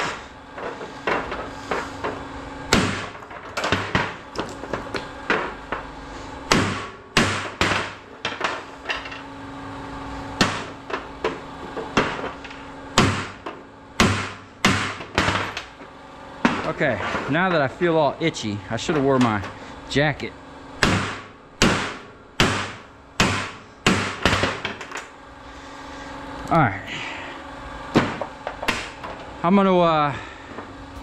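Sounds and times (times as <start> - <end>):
hammer striking scrap metal: 0.0 - 5.9, 6.5 - 9.2, 10.4 - 17.7, 20.8 - 25.0, 27.9 - 29.2
faint steady hum: 0.0 - 31.0.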